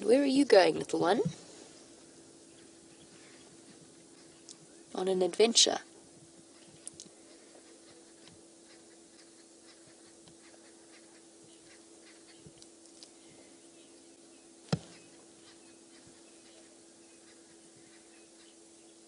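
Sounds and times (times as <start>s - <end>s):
faint hum: 0.0s - 19.0s
soft ticks and crackles: 2.6s - 13.5s.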